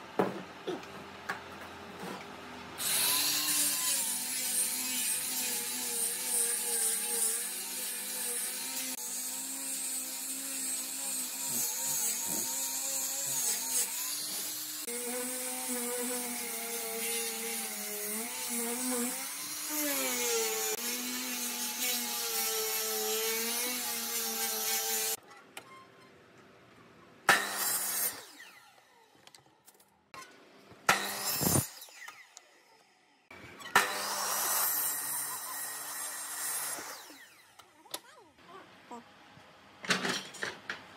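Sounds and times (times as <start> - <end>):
angle grinder sanding wood: 2.8 - 25.2, 31.0 - 31.7.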